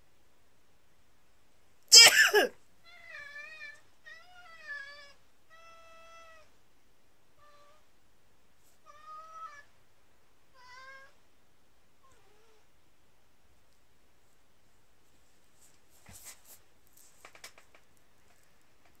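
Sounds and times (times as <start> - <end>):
person sneezing: 1.9 - 2.6
cat meowing: 2.8 - 6.5, 8.8 - 9.7, 10.5 - 11.2.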